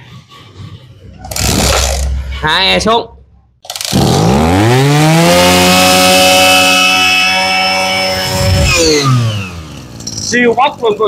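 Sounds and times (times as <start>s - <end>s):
brush cutter engine revving: 3.7s - 10.0s.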